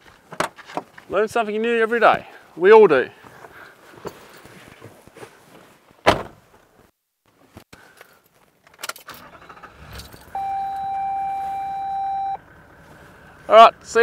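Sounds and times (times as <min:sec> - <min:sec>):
steady electronic beep: 0:10.4 - 0:12.4.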